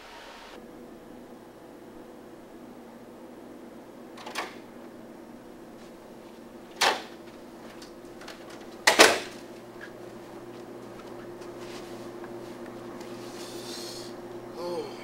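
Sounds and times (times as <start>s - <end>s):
low room hum: 0.0s - 15.0s
door opening clack: 8.3s - 9.4s.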